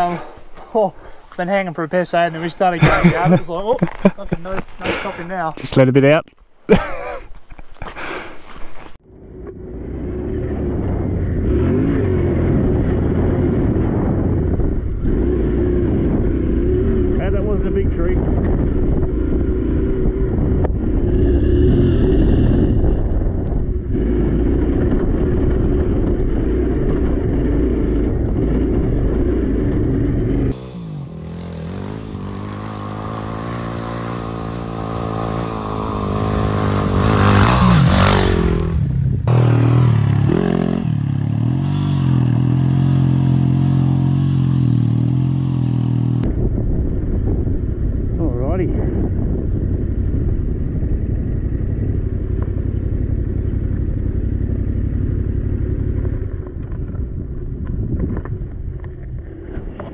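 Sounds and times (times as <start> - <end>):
motorcycle engine and road rumble: 0.0 - 59.9
motorcycle passing by: 9.0 - 47.5
distant motorcycle engine: 9.0 - 59.9.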